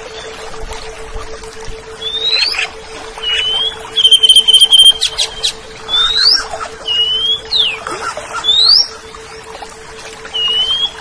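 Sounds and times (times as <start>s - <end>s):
steady hum: 0.0s - 11.0s
bird singing whistled notes: 2.0s - 7.8s, 8.4s - 9.0s, 10.4s - 11.0s
bird trill: 2.0s - 9.1s, 10.4s - 11.0s.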